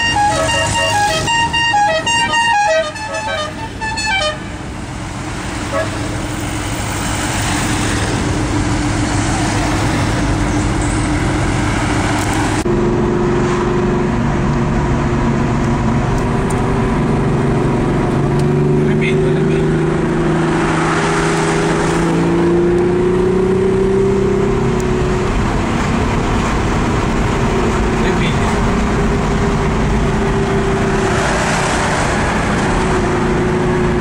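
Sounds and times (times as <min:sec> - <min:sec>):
car horns tooting: 0:00.0 - 0:04.6
cars driving by: 0:00.0 - 0:34.0.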